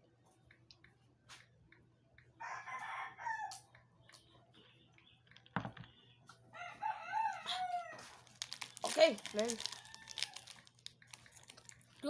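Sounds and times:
rooster crowing: 2.4s - 3.6s, 6.5s - 8.2s, 9.6s - 10.6s.

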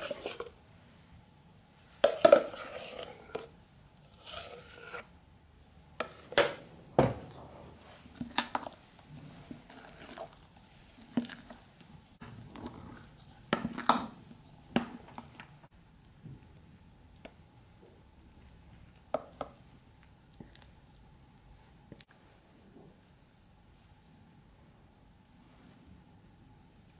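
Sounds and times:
spoon clinking and scraping bowl: 2.0s - 3.5s.

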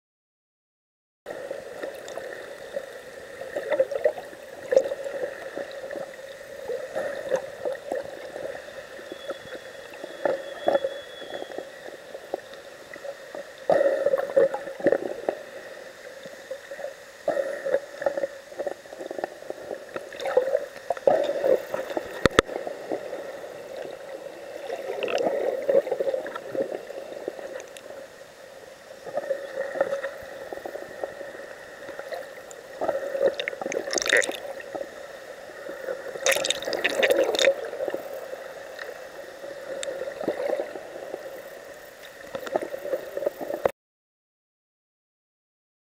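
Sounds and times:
faint steady whine: 1.3s - 43.7s
muffled underwater water sloshing: 29.0s - 43.7s.

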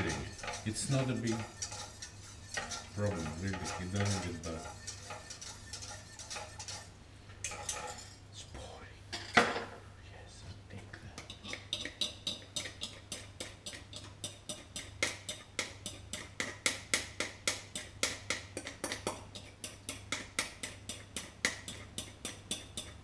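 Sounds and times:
utensil knocking metal pot: 0.0s - 6.9s.

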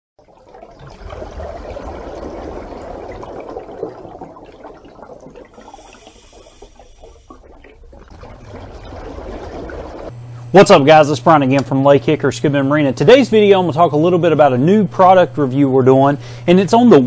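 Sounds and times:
water bubbling and gurgling: 0.2s - 10.2s.

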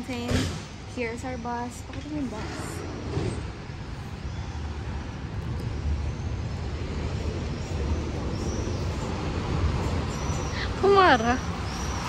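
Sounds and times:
bus engine rumble: 0.0s - 12.0s
street traffic: 0.0s - 12.0s.

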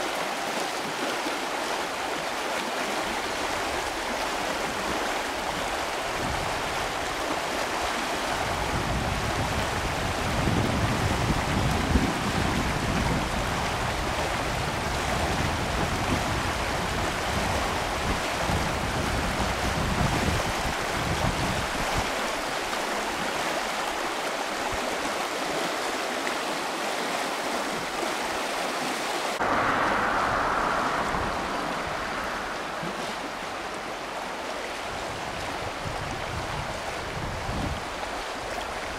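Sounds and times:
river rushing over stones: 0.0s - 38.9s
wind buffeting microphone: 3.1s - 22.6s, 29.4s - 38.9s.

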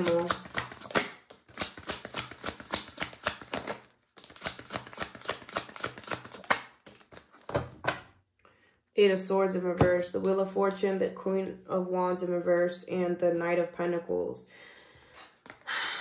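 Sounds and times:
cards being shuffled: 0.0s - 7.9s, 15.3s - 15.6s.

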